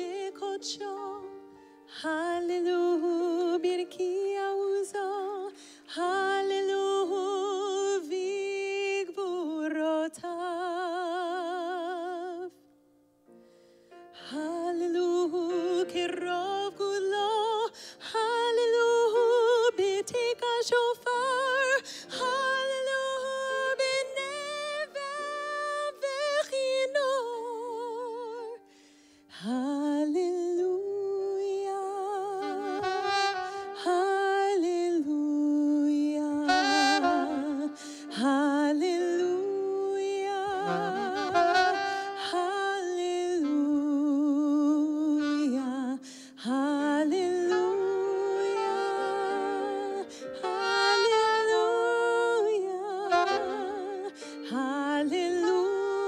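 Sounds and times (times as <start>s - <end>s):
woman singing: 0.0s - 12.7s, 14.1s - 28.7s, 29.3s - 56.0s
saxophone: 21.5s - 26.5s, 31.3s - 56.0s.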